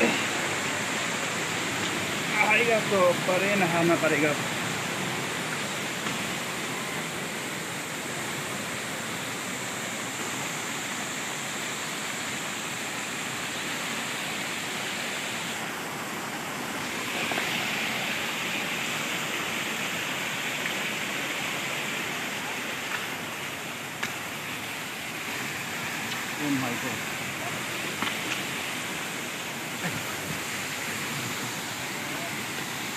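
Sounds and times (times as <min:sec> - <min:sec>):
stream rushing over rocks: 0:00.0 - 0:32.9.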